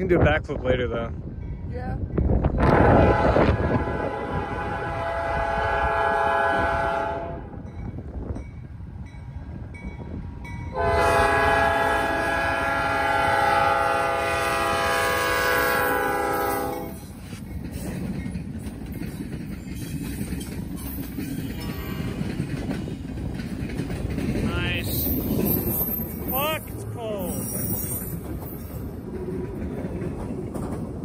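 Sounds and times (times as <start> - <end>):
freight train rumbling past: 0.0 - 31.0
locomotive horn blasts: 2.7 - 7.6, 10.7 - 17.0.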